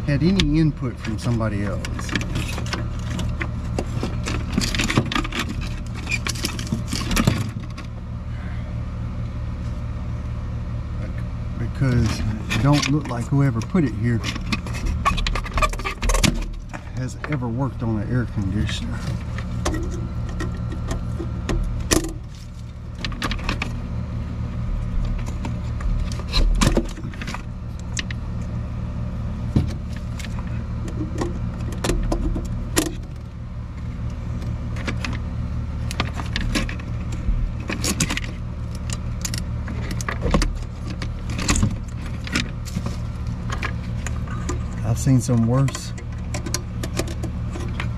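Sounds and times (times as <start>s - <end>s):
low machine hum: 0.0s - 47.9s.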